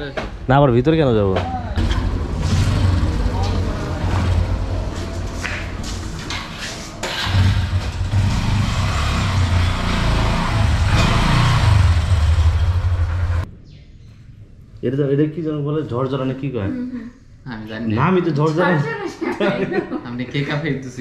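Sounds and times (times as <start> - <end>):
motorcycle engine at low revs: 7.1 - 13.5.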